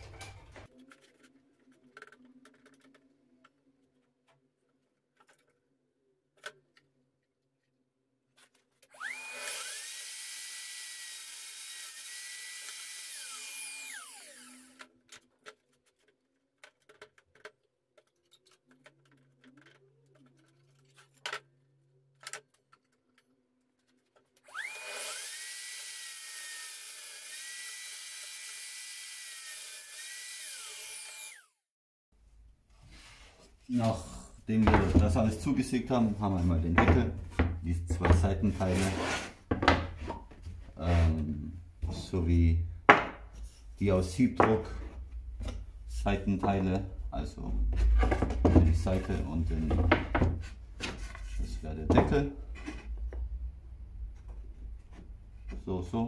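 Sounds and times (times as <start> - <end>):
saw cutting wooden board: 8.9 - 14.9, 24.5 - 31.6, 38.5 - 39.4
table saw whining: 8.9 - 14.9, 24.4 - 31.6.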